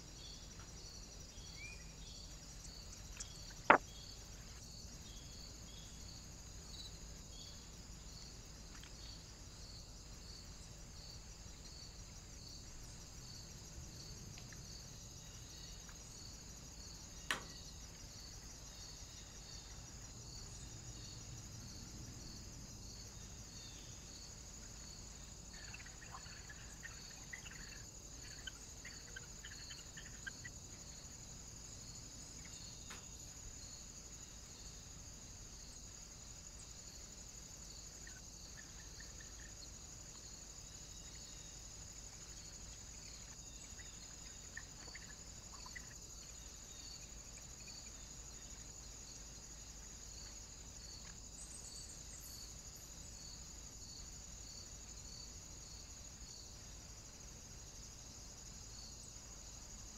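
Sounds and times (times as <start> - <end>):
faint bird chirps: 0.0 - 6.0, 25.5 - 31.0, 42.8 - 48.7
insects chirping: 0.0 - 59.9.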